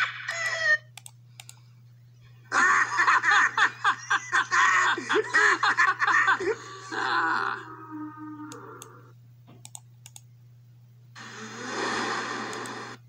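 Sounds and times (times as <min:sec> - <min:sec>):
cartoon hyena laughing: 0:00.0 - 0:00.9, 0:02.5 - 0:08.8
speaker hum: 0:00.0 - 0:13.0
sharp clicks: 0:00.9 - 0:01.6, 0:09.6 - 0:10.3.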